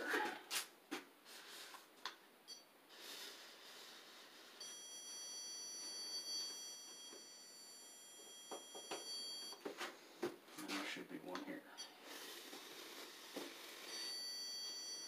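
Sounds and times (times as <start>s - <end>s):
stud finder high-pitched beep: 4.6s - 9.6s, 13.9s - 15.0s.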